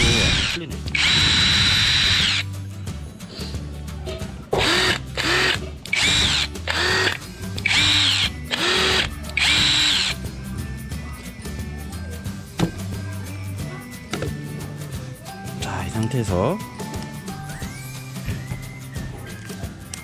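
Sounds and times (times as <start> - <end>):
impact driver motor whine: 0.0 - 2.4, 4.6 - 10.2.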